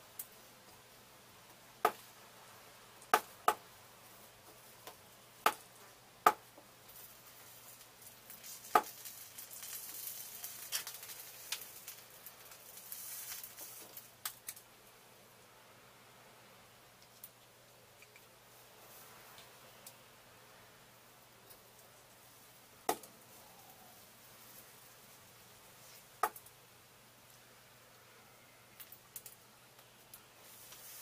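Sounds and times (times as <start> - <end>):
flux sizzling under soldering iron: 6.9 - 14.3.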